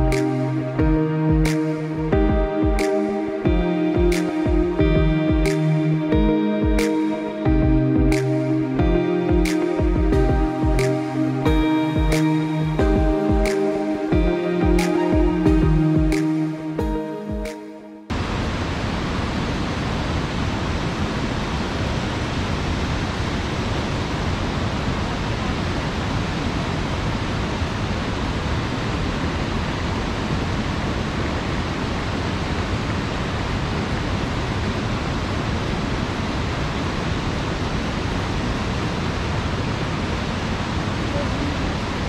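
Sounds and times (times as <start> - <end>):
music: 0.0 - 18.1
waterfall roaring: 18.1 - 42.0.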